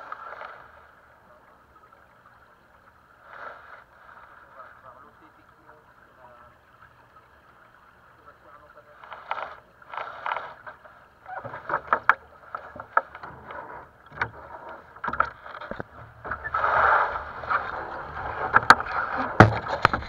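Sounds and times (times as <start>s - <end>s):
water slapping against boat hull: 9.0s - 20.0s
boat fittings clicking and knocking: 11.4s - 16.4s, 18.5s - 20.0s.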